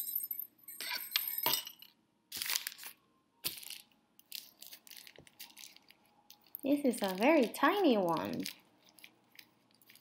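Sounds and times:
wrapping paper crinkling: 0:02.3 - 0:10.0.

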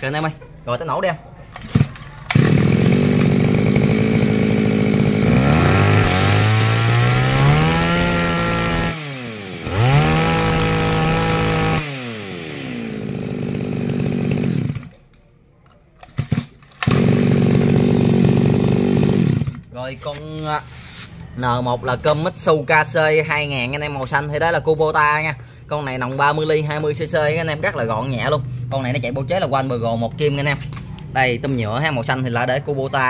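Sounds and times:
brush cutter engine idling and revving: 0:01.6 - 0:15.0, 0:16.1 - 0:19.7.

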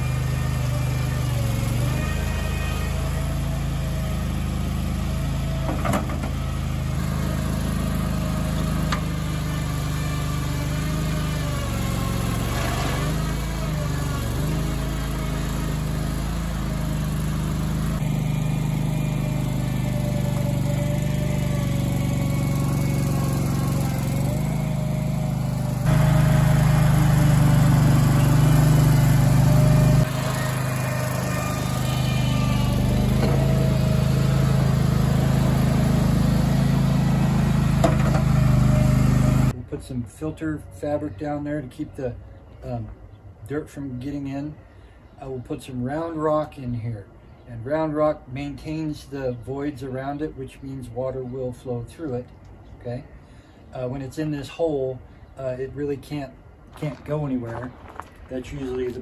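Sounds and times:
loader engine running under load: 0:00.0 - 0:39.6.

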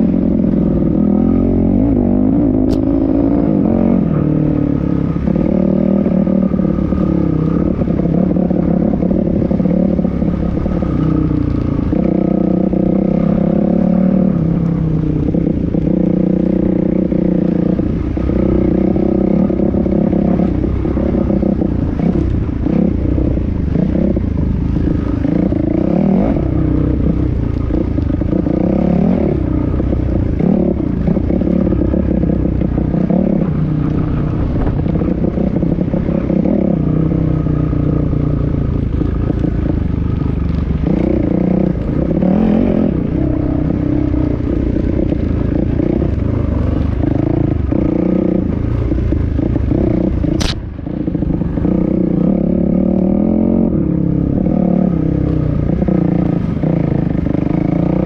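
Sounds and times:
dirt bike engine revving: 0:40.8 - 0:50.6
sharp click: 0:50.3 - 0:50.6.

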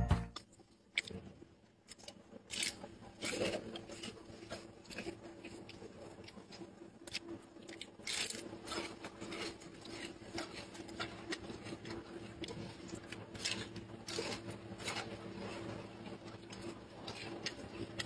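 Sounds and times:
gorilla crunching pepper: 0:00.4 - 0:18.0.

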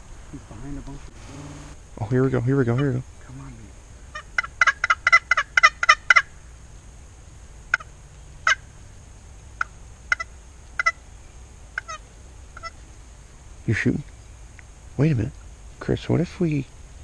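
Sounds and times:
wild turkey calling: 0:00.4 - 0:06.5, 0:07.7 - 0:08.8, 0:09.6 - 0:13.0.

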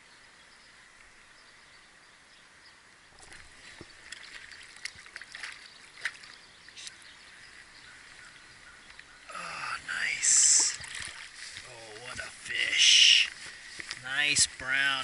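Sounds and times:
stream flowing: 0:00.0 - 0:15.0
fish splashing at surface: 0:10.3 - 0:11.6.

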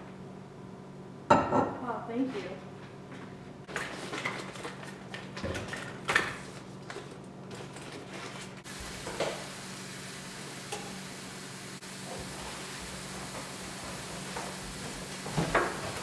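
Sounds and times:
steady hiss: 0:08.7 - 0:16.0.

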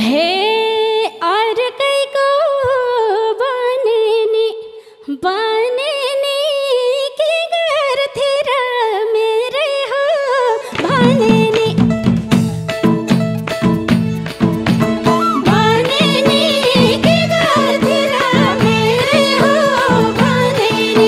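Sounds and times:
woman singing into a microphone: 0:00.0 - 0:12.2, 0:15.2 - 0:21.0
band with drums: 0:10.8 - 0:21.0.

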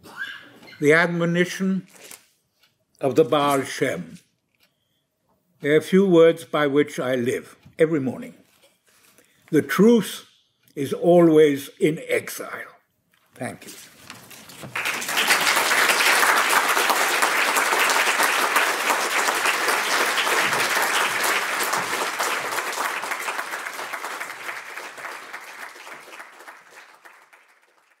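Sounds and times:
audience applauding: 0:14.6 - 0:28.0.

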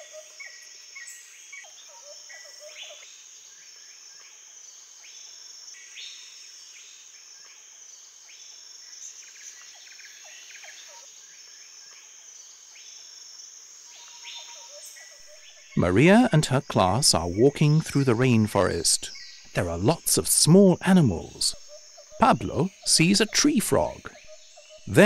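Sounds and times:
low whistled calls: 0:15.2 - 0:25.0.

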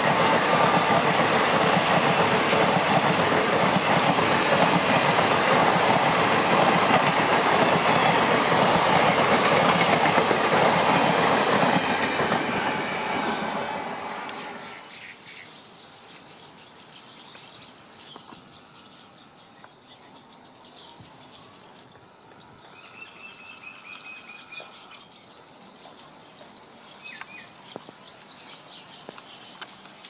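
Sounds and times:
steady high trill: 0:00.0 - 0:14.8
insects: 0:14.4 - 0:30.0.

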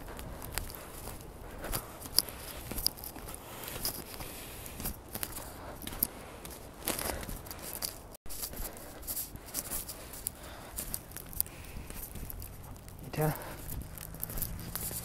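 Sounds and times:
footsteps crunching in snow: 0:00.0 - 0:15.0.

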